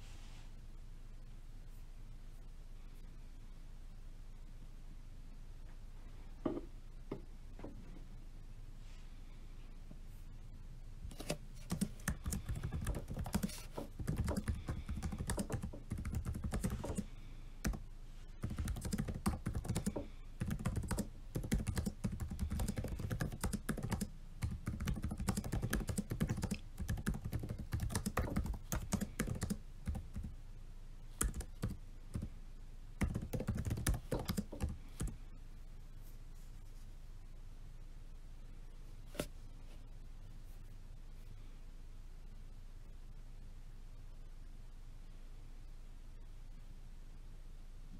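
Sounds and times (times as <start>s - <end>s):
laptop keyboard typing: 11.1s - 17.8s, 18.4s - 30.4s, 31.1s - 32.3s, 33.0s - 35.2s.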